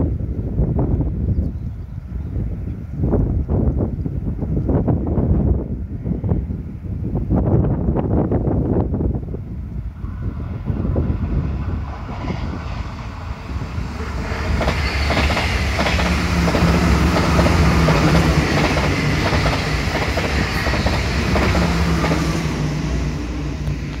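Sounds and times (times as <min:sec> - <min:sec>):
electric train passing: 0:07.9 - 0:24.0
train wheels clicking over rail joints: 0:14.4 - 0:22.3.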